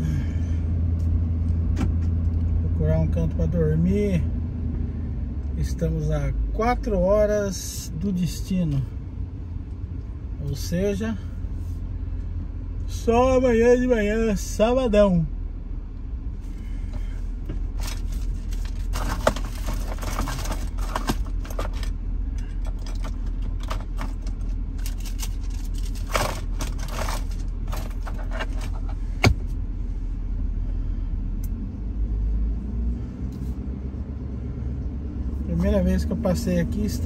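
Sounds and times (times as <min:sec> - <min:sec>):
engine and road rumble: 0:00.0 - 0:37.0
rattles and clicks in cab: 0:01.0 - 0:02.6, 0:16.9 - 0:29.6.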